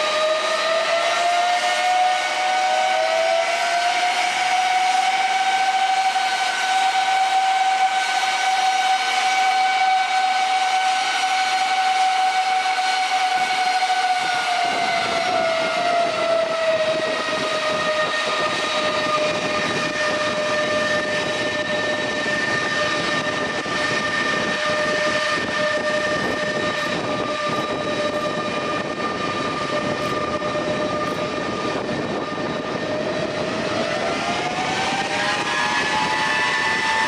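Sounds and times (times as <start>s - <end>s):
jet engines whining: 0.0s - 37.0s
low rushing roar: 10.7s - 37.0s.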